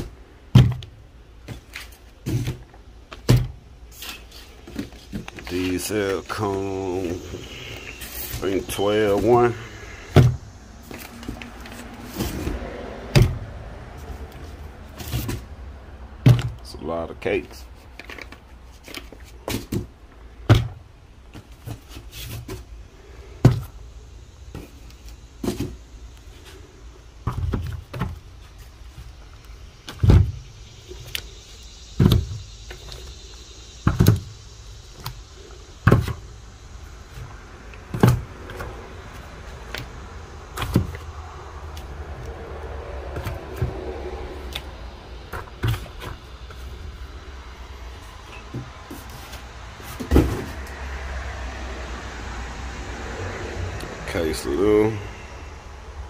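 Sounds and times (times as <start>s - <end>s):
cardboard boxes knocking: 0.0s - 3.6s, 49.9s - 50.6s
steady low hum: 0.0s - 56.0s.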